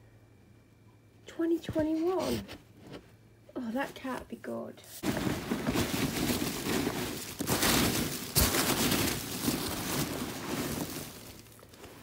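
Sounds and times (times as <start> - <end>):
packing peanuts rustling: 5.0 - 12.0.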